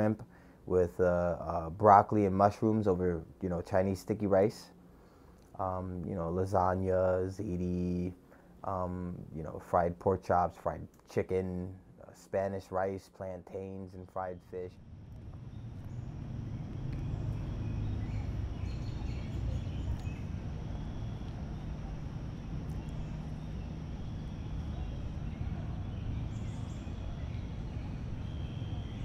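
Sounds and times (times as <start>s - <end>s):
steady low rumble: 14.0s - 29.0s
faint bird chirps: 14.1s - 29.0s.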